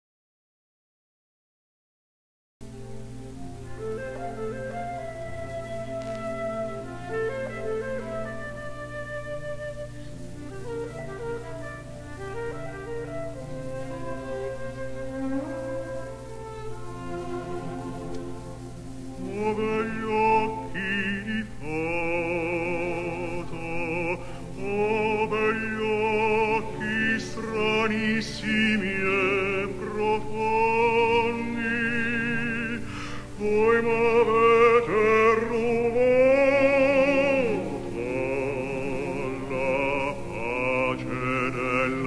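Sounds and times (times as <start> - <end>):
string chamber orchestra: 2.7 - 42.0
man singing operatically: 19.2 - 42.0.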